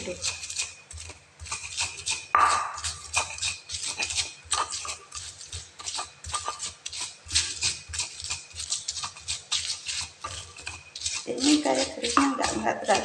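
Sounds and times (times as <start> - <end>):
pestle pounding in stone mortar: 0.0 - 13.0.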